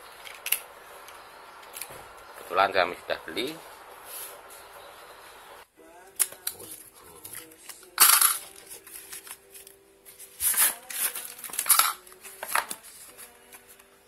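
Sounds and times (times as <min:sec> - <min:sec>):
cardboard tearing: 0:10.4 - 0:11.6
packing tape slit with blade: 0:10.4 - 0:13.4.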